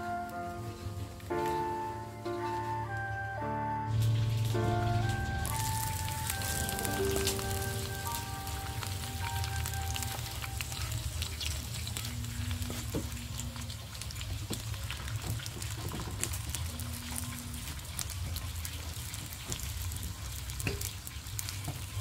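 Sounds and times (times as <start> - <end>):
steady rain hissing: 0.0 - 22.0
low rumble: 3.9 - 13.7.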